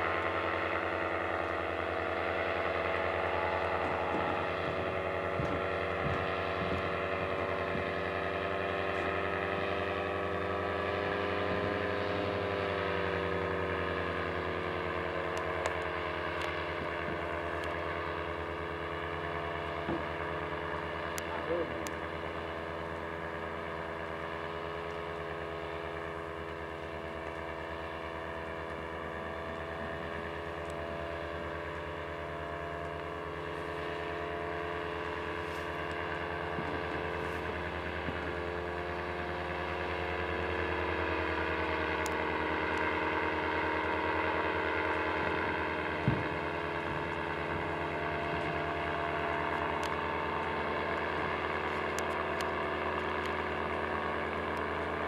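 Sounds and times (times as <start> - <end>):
paramotor engine droning: 0.0 - 55.0.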